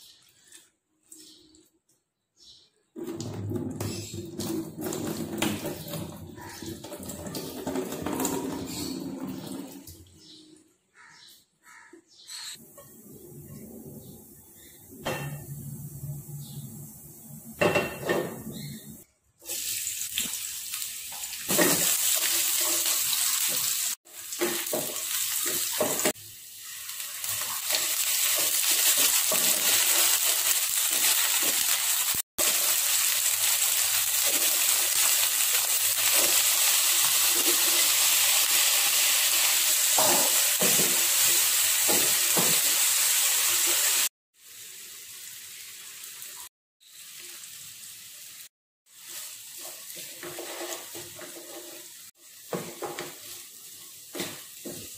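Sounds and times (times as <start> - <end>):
onions and potatoes sizzling in oil: 3.9 - 9.3, 14.2 - 54.9
wooden spatula scraping a pan: 49.0 - 53.4.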